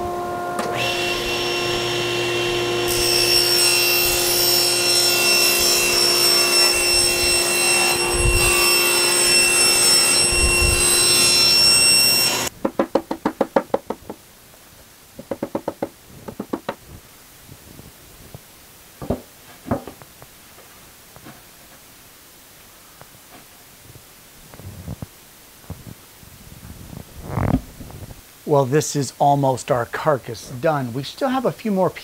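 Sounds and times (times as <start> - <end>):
table saw cutting plywood: 0.0 - 12.5.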